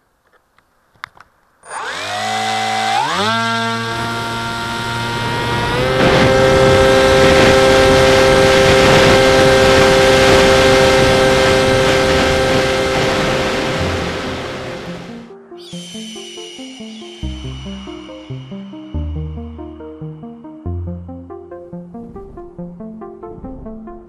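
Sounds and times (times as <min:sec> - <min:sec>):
electric motor and propeller whine: 0:01.6 - 0:15.3.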